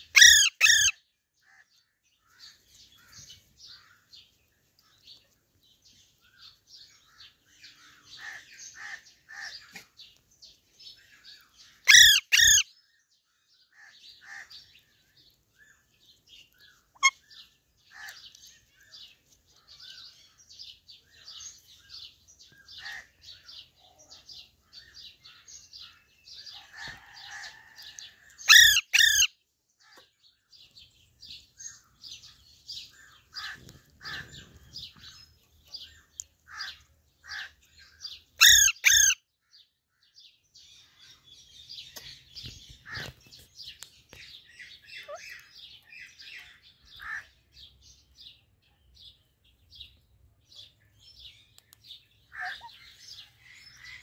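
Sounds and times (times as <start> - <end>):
small birds twittering: 0.0 - 54.0
parakeets squawking: 0.1 - 1.0, 11.9 - 12.6, 28.5 - 29.3, 38.4 - 39.2, 52.3 - 52.9.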